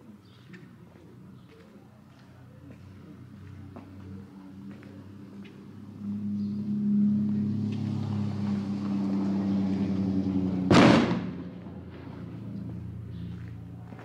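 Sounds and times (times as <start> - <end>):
steady engine-like hum: 0.0 - 14.0
firework rocket bang: 10.7 - 12.1.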